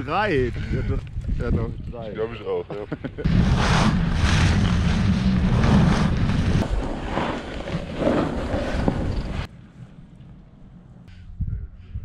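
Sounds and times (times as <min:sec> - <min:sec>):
wind buffeting microphone: 0:00.0 - 0:02.4, 0:11.1 - 0:12.0.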